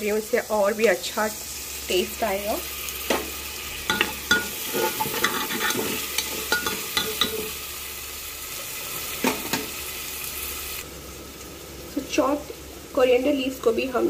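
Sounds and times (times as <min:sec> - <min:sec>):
vegetables sizzling in hot oil: 0:00.0 - 0:14.0
metal spoon scraping pot: 0:03.9 - 0:07.5.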